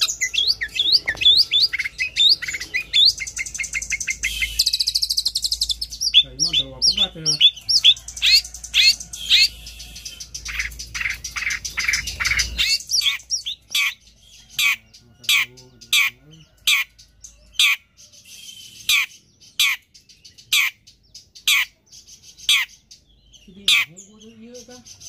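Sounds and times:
bird singing high notes: 0:00.0 - 0:14.5
sharp downward-slurred bird calls: 0:00.0 - 0:25.0.

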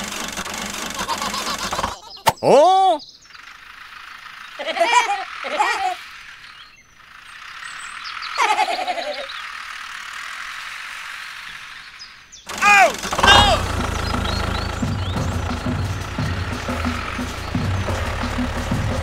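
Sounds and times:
cartoon voice-like squeaks: 0:01.0 - 0:03.0, 0:04.6 - 0:06.0, 0:12.5 - 0:13.7.

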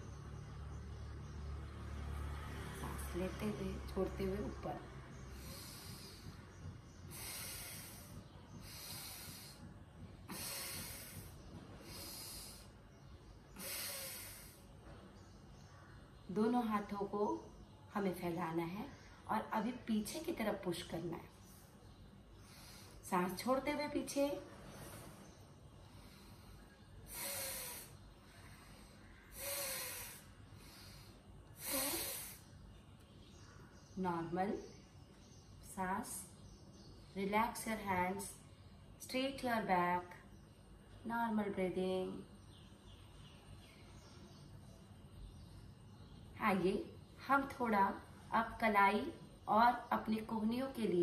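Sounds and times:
woman breathing hard: 0:05.2 - 0:14.8, 0:25.7 - 0:32.6
woman exhaling forcefully: 0:10.3 - 0:12.7, 0:27.1 - 0:32.5.

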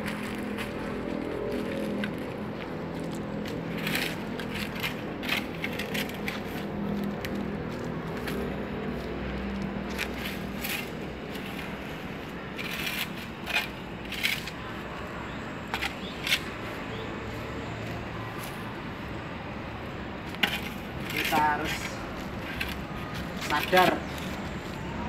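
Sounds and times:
hand tool scraping dry leaves: 0:03.6 - 0:06.7, 0:09.9 - 0:11.9, 0:12.5 - 0:14.7, 0:20.4 - 0:24.4.

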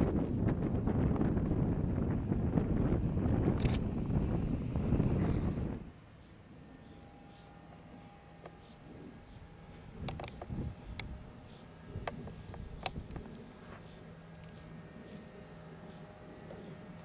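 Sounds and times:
sharp clicks: 0:03.6 - 0:03.9, 0:10.0 - 0:11.1, 0:12.0 - 0:13.5.

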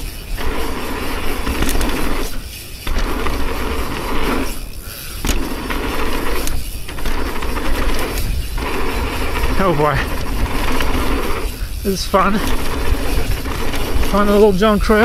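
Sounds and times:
bike chain and frame rattling: 0:00.0 - 0:15.0
wind on camera: 0:06.1 - 0:15.0.

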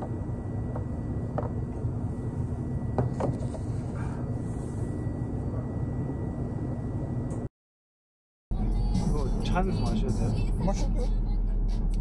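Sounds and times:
car ride rumble inside vehicle: 0:08.6 - 0:12.0.

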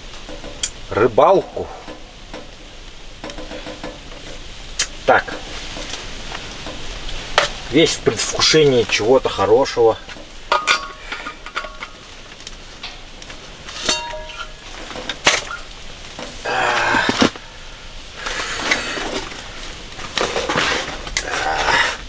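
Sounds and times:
scraping and rustling: 0:01.7 - 0:22.0
utensil clinking against dish: 0:10.5 - 0:12.0, 0:13.8 - 0:15.6.

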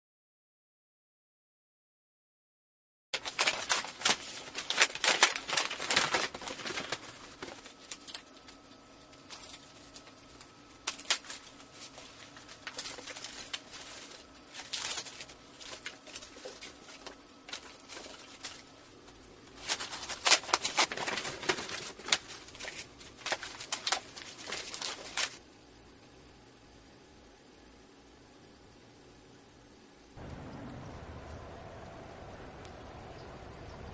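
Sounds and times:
cigarettes clattering: 0:03.2 - 0:25.4
packaging crinkling and tearing: 0:03.2 - 0:25.4.

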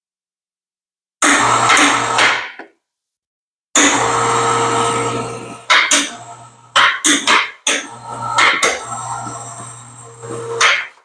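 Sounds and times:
electric hoist motor humming: 0:03.8 - 0:07.0, 0:07.7 - 0:11.0.

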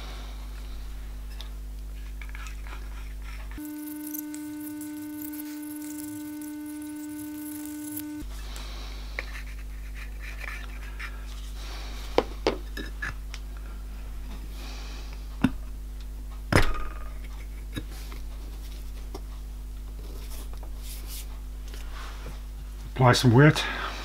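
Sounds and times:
steady low hum: 0:00.0 - 0:16.5
scratchy rubbing of metal: 0:02.4 - 0:08.2.

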